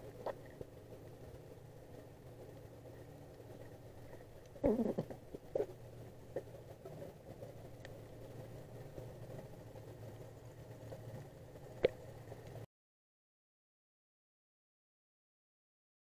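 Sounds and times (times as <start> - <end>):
underwater engine drone: 0.0 - 12.6.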